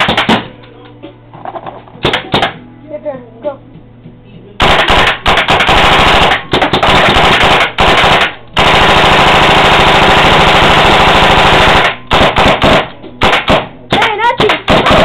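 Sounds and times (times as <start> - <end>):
paintball marker firing rapidly: 0.0 - 0.5, 4.6 - 15.0.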